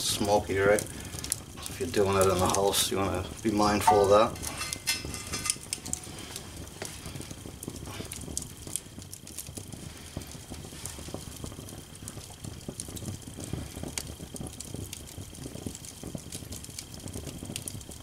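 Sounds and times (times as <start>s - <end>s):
low rumble of flames: 0.0s - 18.0s
wood fire crackling and popping: 0.0s - 18.0s.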